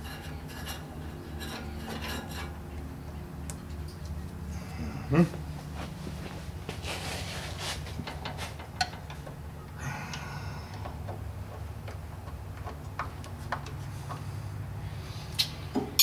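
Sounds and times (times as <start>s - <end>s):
scraping rattle: 0.0s - 2.6s
steady low hum: 0.0s - 16.0s.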